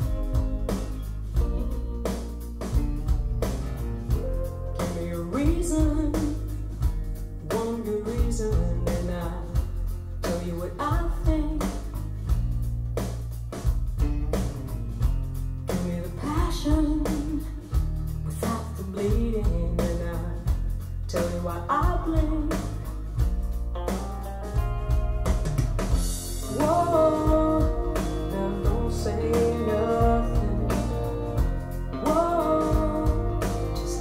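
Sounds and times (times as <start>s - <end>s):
rock band playing: 0.0s - 10.4s, 11.2s - 18.8s, 19.8s - 34.0s
woman singing: 4.2s - 6.8s, 7.4s - 12.0s, 15.7s - 23.0s, 26.4s - 34.0s.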